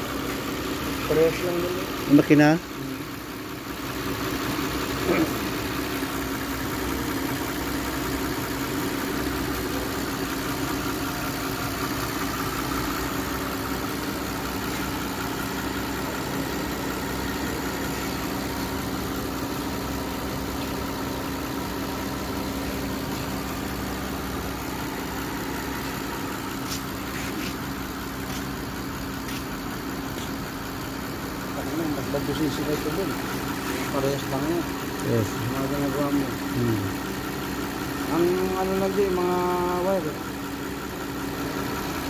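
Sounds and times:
car engine idling: 0.0 - 42.0.

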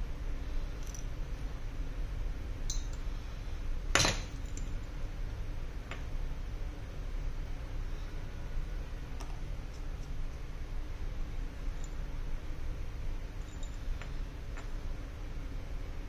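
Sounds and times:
steady low hum: 0.0 - 16.0
metal tools clinking: 2.7 - 3.0, 13.4 - 14.1.

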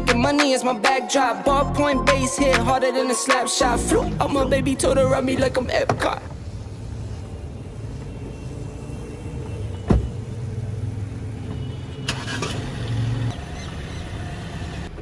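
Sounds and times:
car door shutting: 9.4 - 10.4.

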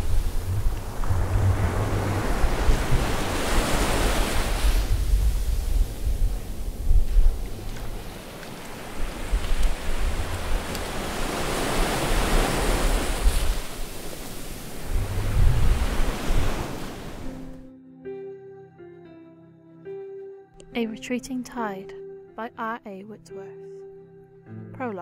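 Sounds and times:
soft music notes: 0.0 - 10.9, 17.2 - 25.0
ocean waves washing on shore: 0.0 - 17.6.

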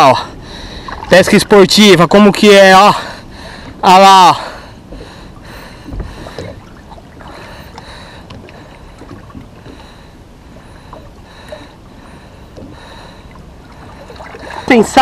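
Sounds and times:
water lapping against boat: 0.0 - 15.0
small water splashes: 5.0 - 15.0.

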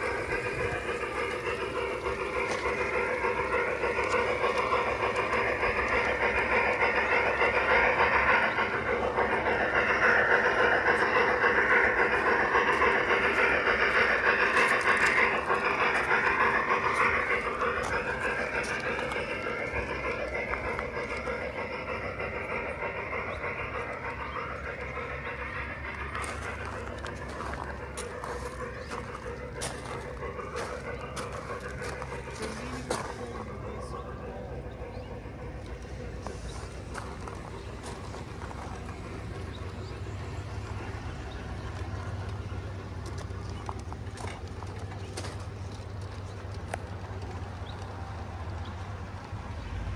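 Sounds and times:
model train rattling on rails: 0.0 - 49.9.

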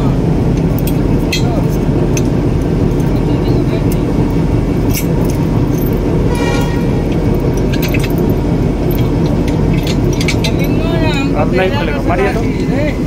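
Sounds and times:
loud steady low rumble: 0.0 - 13.0
steel chain clinking: 4.8 - 11.5.

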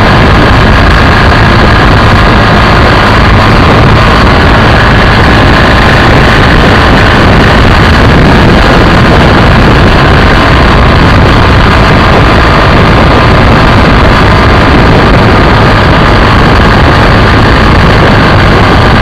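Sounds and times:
motorcycle engine droning: 0.0 - 19.0
wind and road noise: 0.0 - 19.0.

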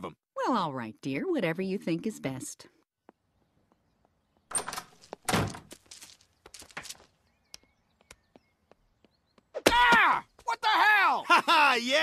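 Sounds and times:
wooden door opening and shutting: 4.5 - 5.7.

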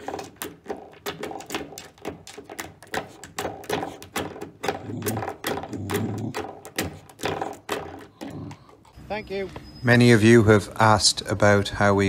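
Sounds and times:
spring doorstop twanging: 0.0 - 8.8.

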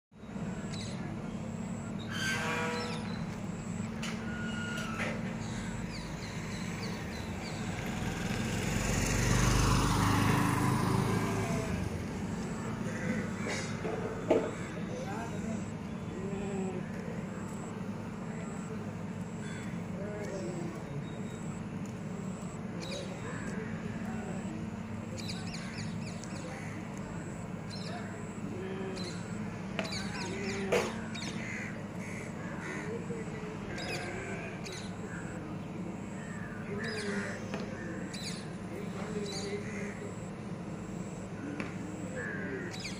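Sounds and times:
birds chirping: 0.2 - 42.9
vehicle engine passing: 5.6 - 15.6.

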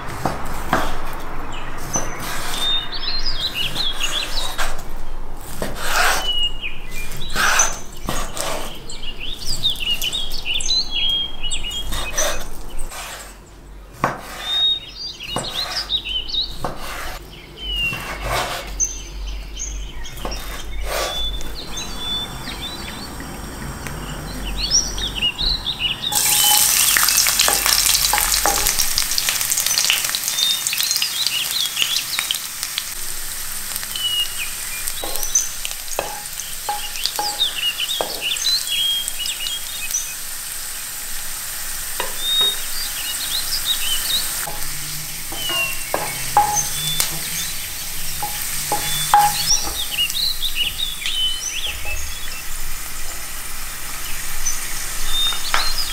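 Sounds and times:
garlic sizzling in hot oil: 26.1 - 55.9
wooden spoon knocking pan: 26.2 - 30.4, 35.0 - 38.4, 44.5 - 50.3.

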